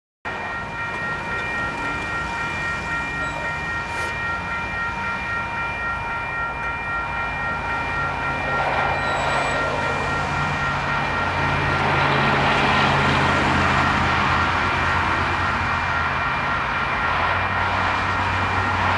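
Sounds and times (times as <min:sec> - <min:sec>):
electronic crossing bell ringing: 0:00.3 - 0:18.9.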